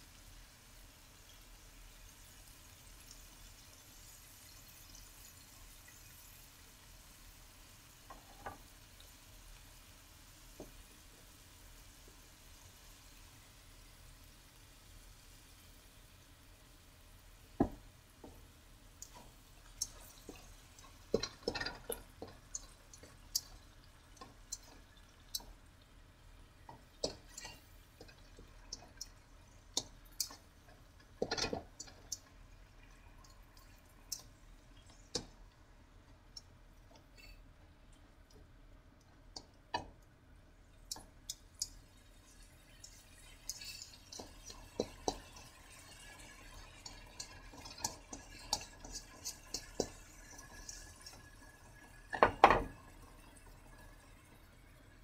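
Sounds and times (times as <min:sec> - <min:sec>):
food sizzling in a wok: 0:00.0 - 0:37.7, 0:39.4 - 0:55.0
spatula scraping a pan: 0:43.4 - 0:51.2.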